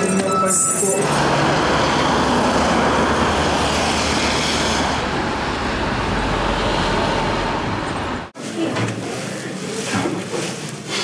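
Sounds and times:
traffic rumble: 0:00.8 - 0:08.4.

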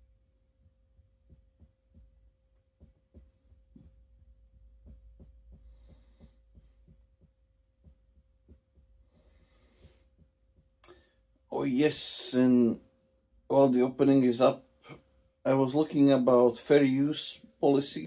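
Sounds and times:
faint low thumps: 0:00.6 - 0:10.9.

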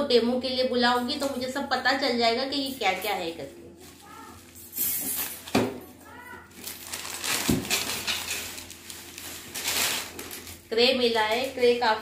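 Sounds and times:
plastic packaging crinkling: 0:06.5 - 0:11.8.

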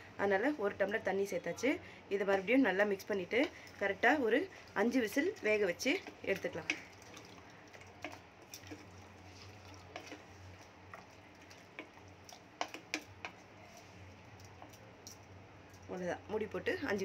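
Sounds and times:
wooden spatula knocking pot: 0:08.0 - 0:08.9, 0:12.6 - 0:13.4.

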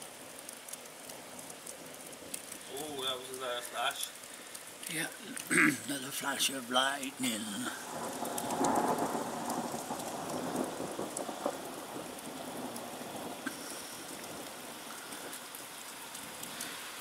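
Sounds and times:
steady rain: 0:00.0 - 0:17.0
thunder rumbling: 0:05.0 - 0:17.0.

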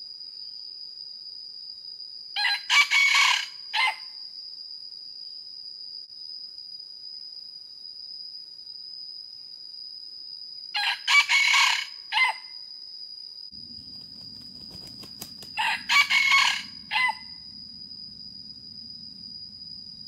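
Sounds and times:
rooster crowing: 0:02.4 - 0:04.1, 0:10.7 - 0:12.5, 0:14.4 - 0:17.4.

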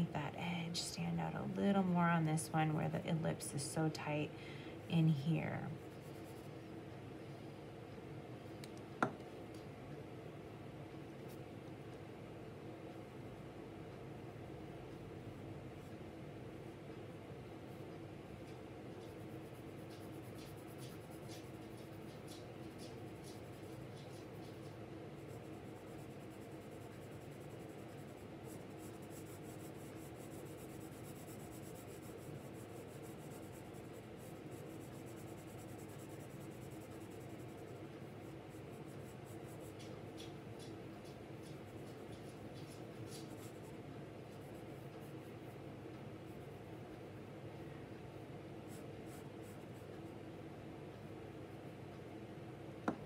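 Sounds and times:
steady low hum: 0:00.0 - 0:53.0
pencil scratching on paper: 0:19.0 - 0:45.6, 0:48.7 - 0:49.9.

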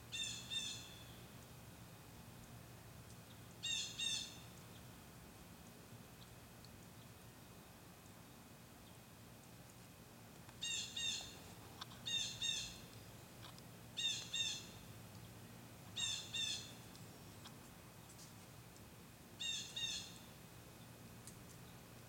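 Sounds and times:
blue jay two-note calls: 0:00.1 - 0:01.1, 0:03.6 - 0:04.4, 0:10.6 - 0:11.4, 0:12.0 - 0:12.8, 0:14.0 - 0:14.8, 0:16.0 - 0:16.8, 0:19.4 - 0:20.2.

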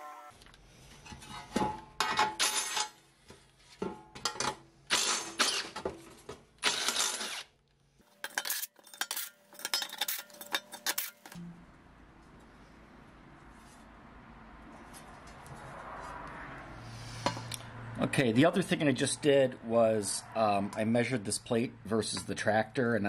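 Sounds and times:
cordless drill drilling steel: 0:06.6 - 0:07.5.

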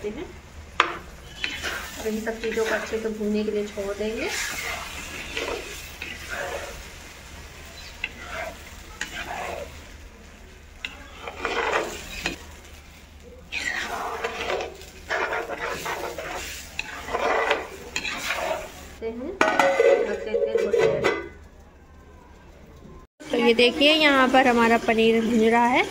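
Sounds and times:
paste sizzling in oil: 0:00.0 - 0:19.0, 0:23.2 - 0:25.9
metal ladle scraping a pot: 0:01.2 - 0:03.2, 0:04.1 - 0:06.8, 0:07.8 - 0:09.8, 0:10.8 - 0:12.4, 0:13.5 - 0:18.8.

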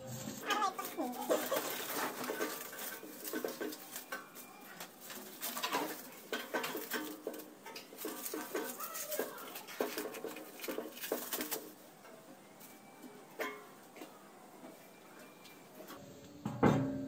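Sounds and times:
metal stove parts clinking: 0:00.5 - 0:12.3, 0:13.4 - 0:13.8.

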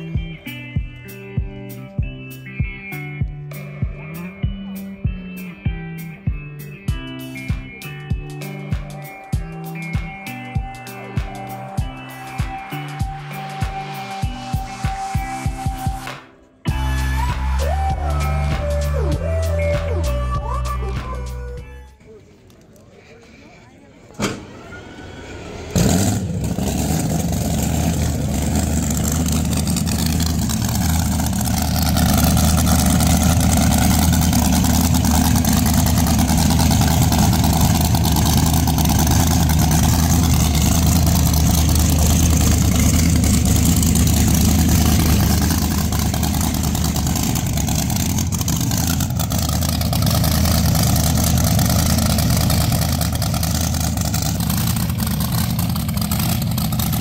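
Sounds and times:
car engine idling: 0:25.4 - 0:57.0.

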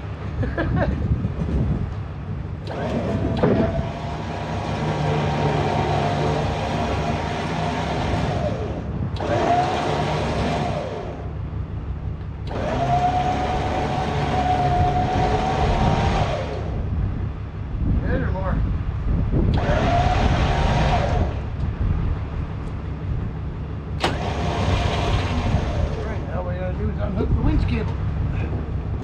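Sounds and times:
electric winch motor whine: 0:02.6 - 0:11.5, 0:12.4 - 0:16.9, 0:19.5 - 0:21.6, 0:24.0 - 0:26.3.

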